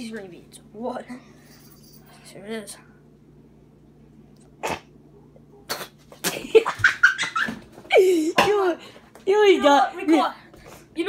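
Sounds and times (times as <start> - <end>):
boy coughing and sputtering: 4.6 - 5.0.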